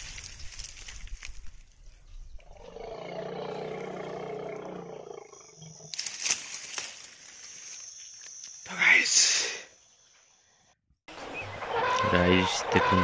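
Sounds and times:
elephant roaring: 2.4 - 5.9.

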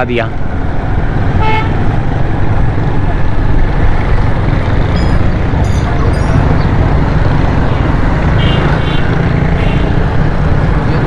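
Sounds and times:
road noise: 0.0 - 11.0
high-pitched chirps: 4.9 - 6.6.

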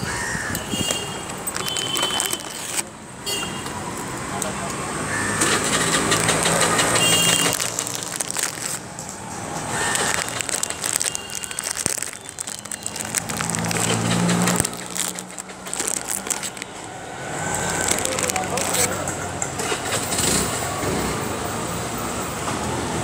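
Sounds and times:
street noise: 0.0 - 23.0
phone handling noise: 0.7 - 2.9
engine-like hum: 4.0 - 21.5.

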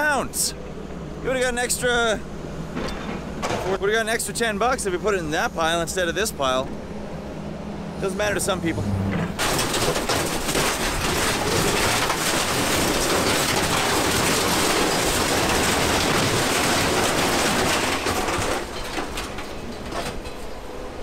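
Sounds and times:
scrap metal clattering: 9.1 - 20.6.

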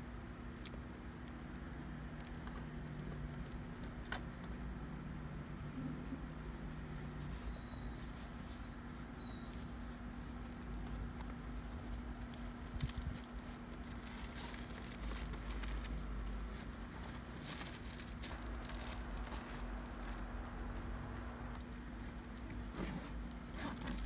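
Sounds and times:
steady low hum: 0.0 - 24.0
fabric rustling and crinkling: 6.7 - 24.0.

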